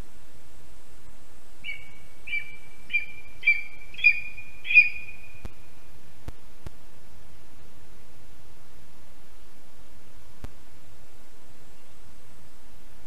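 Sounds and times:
eagle yelping calls: 0:01.6 - 0:05.5.

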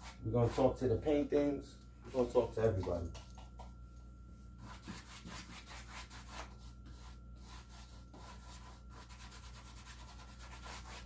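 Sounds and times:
paintbrush scrubbing on canvas: 0:04.6 - 0:11.0.

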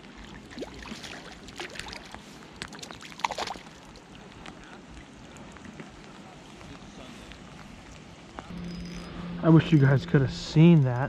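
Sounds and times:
fish splashing in water: 0:00.0 - 0:05.5
rain pattering on water: 0:00.0 - 0:08.5.

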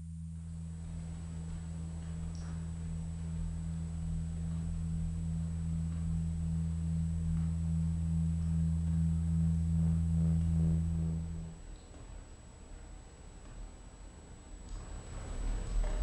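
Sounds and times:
low electronic drone: 0:00.0 - 0:11.7
faint pulsing high tone: 0:00.0 - 0:12.3.

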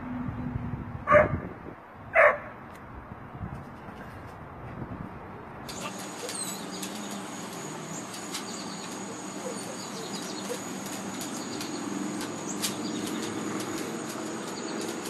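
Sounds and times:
bird chirps: 0:05.7 - 0:15.0
insects droning: 0:05.7 - 0:15.0.

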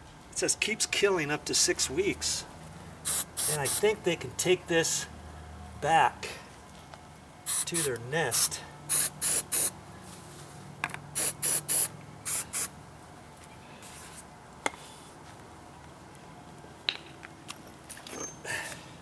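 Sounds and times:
aerosol can spraying: 0:03.1 - 0:03.8, 0:07.5 - 0:09.7, 0:11.2 - 0:12.7.

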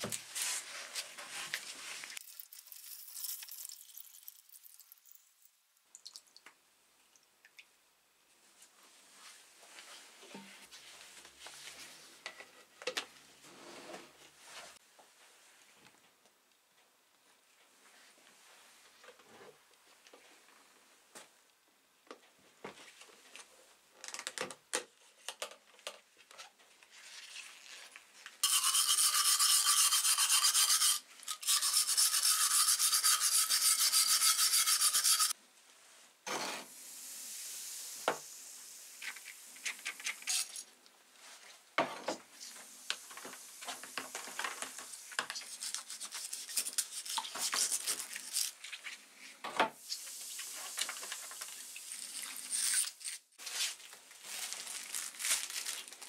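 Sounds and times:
wire brush scrubbing metal: 0:28.4 - 0:35.3
metal parts scraping: 0:40.2 - 0:40.6.

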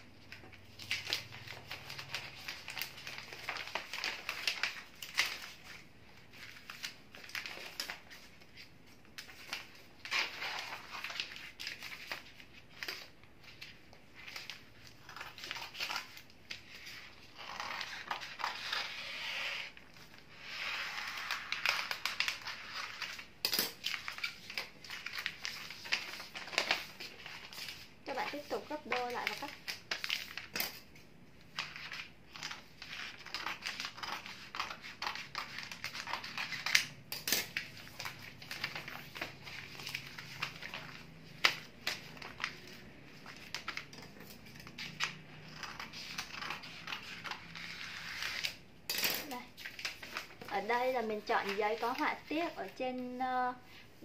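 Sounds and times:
wrapping paper rustling and crinkling: 0:00.0 - 0:54.0
scissors cutting paper: 0:14.2 - 0:30.9, 0:31.6 - 0:48.6.

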